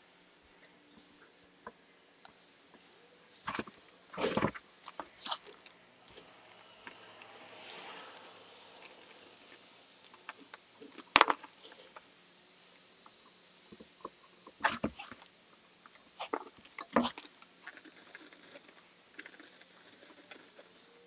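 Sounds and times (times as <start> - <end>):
faint scratching: 16.2 - 21.0.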